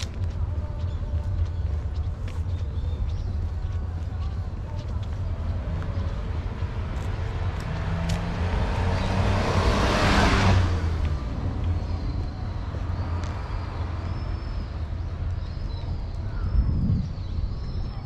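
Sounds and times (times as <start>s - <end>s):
van driving past: 5.2s - 14.4s.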